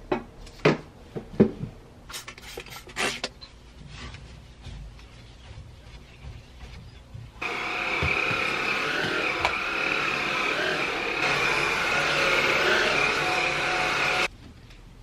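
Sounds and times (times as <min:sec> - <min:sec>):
vacuum cleaner whining: 0:07.4 - 0:14.3.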